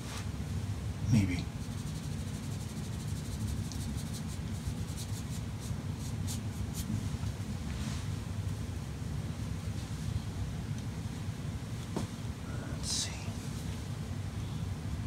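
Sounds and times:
steady low hum: 0.0s - 15.0s
paintbrush stroking paper: 1.5s - 6.9s.

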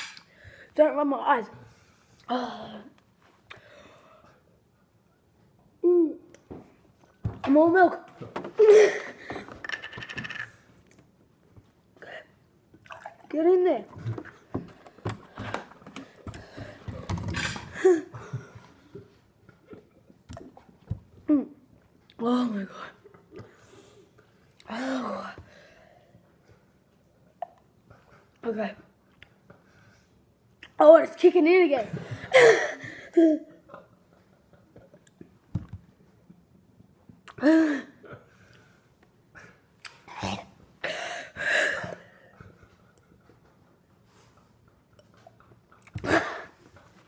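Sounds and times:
quiet breathing: 1.6s - 4.8s
boy groaning: 5.8s - 6.3s
boy gasping: 31.9s - 33.4s
person breathing hard: 40.8s - 42.4s.

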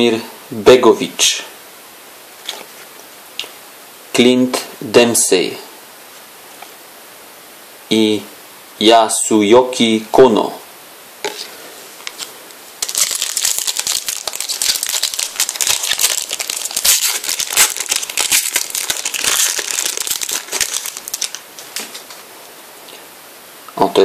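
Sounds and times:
cards shuffling: 11.3s - 22.2s
foil wrapper tearing and crumpling: 12.1s - 22.2s.

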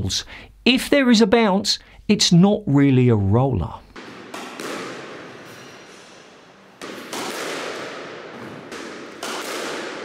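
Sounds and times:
squash ball cracks echoing: 4.0s - 10.0s.

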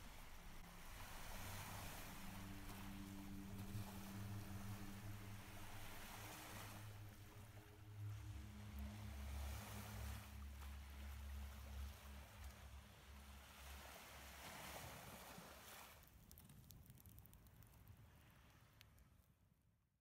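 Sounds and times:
faint low hum: 0.0s - 14.3s
soft hiss: 0.0s - 19.4s.

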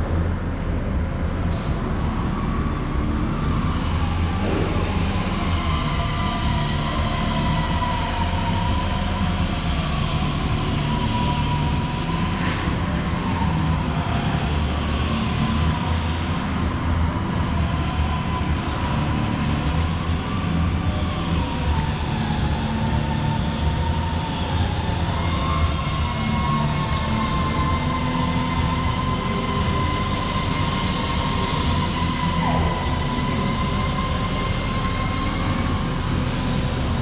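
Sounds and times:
machine rumble with wavering whine: 0.0s - 37.0s.

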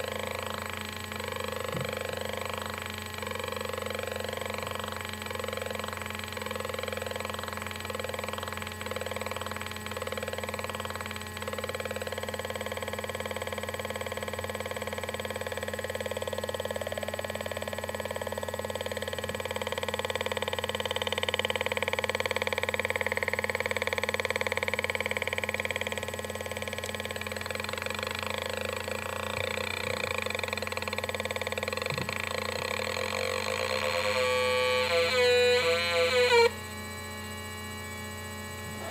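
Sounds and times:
buzzy electronic synth tones: 32.8s - 36.6s.

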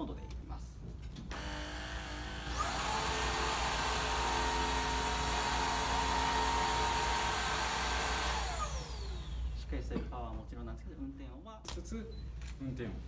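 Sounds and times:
cordless vacuum cleaner whine: 1.3s - 9.6s.

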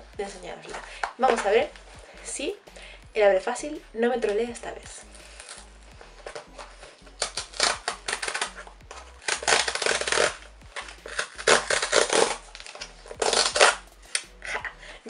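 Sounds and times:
cardboard ripping: 5.0s - 14.7s.

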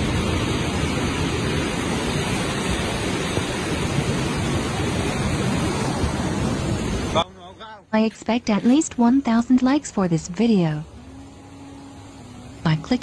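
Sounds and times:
floodwater rushing: 0.0s - 7.6s, 10.8s - 13.0s.

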